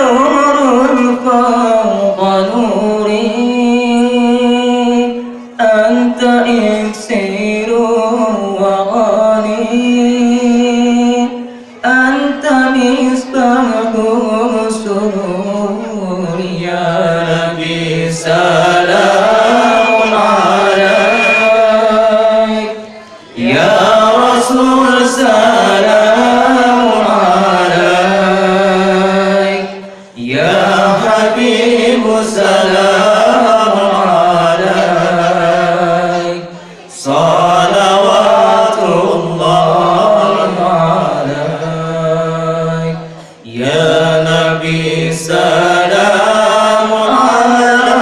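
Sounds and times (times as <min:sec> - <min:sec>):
man chanting over loudspeakers: 0:00.0 - 0:48.0
thin high tone: 0:18.7 - 0:23.6.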